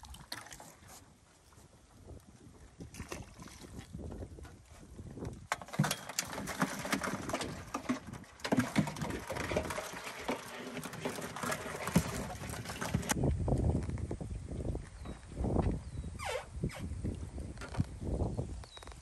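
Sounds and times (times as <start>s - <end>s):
crabs clattering and scratching: 3.0s - 13.2s.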